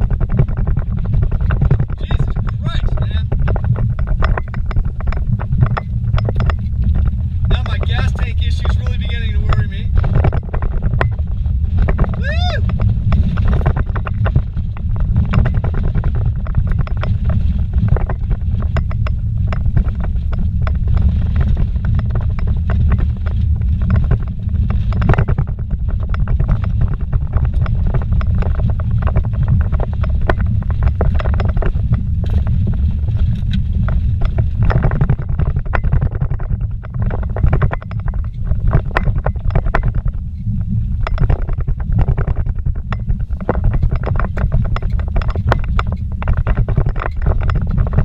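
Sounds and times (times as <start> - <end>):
knocks and rattles in vehicle: 0.0 - 48.0
vehicle rumbling on rough road: 0.0 - 48.0.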